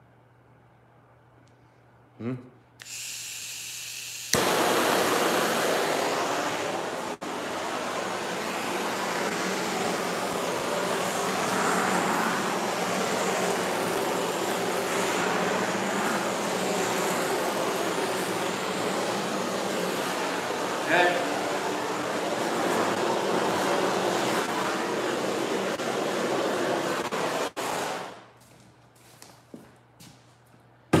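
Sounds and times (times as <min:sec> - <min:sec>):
torch igniting click: 0:04.3 - 0:04.6
torch flame rushing: 0:04.3 - 0:28.2.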